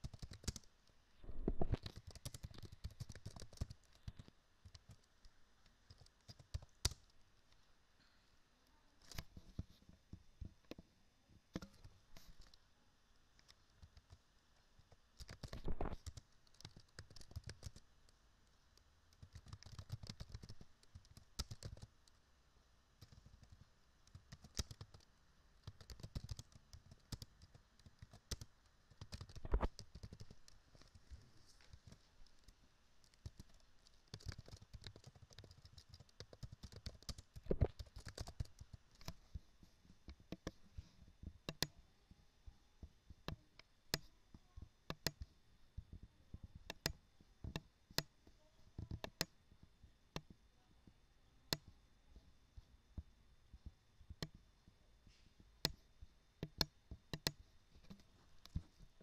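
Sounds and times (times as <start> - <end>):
keyboard typing: 0.0 - 0.7, 1.3 - 5.1, 5.9 - 7.1, 15.2 - 17.8, 19.2 - 21.9, 23.0 - 31.0, 31.7 - 39.2, 41.5 - 41.7, 44.9 - 45.2, 46.7 - 48.1, 56.4 - 58.7
mouse clicks: 1.5 - 5.1, 5.9 - 7.1, 11.6 - 12.6, 15.2 - 17.8, 23.0 - 30.6, 31.6 - 39.2, 40.1 - 40.6, 41.5 - 41.8, 44.9 - 45.3, 46.7 - 48.1, 48.8 - 49.4, 50.2 - 50.4, 54.1 - 54.4, 56.4 - 58.7.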